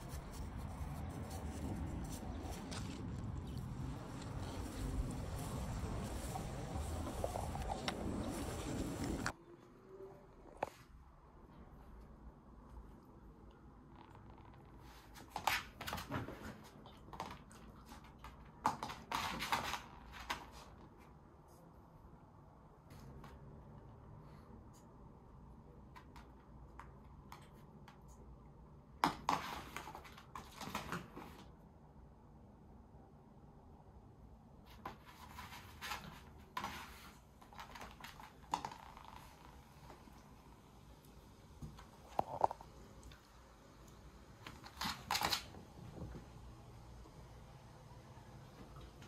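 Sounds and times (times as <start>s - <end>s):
claws and ball on floor: 0.0s - 9.4s, 13.8s - 21.2s, 25.6s - 31.6s, 34.6s - 40.6s, 41.5s - 46.4s.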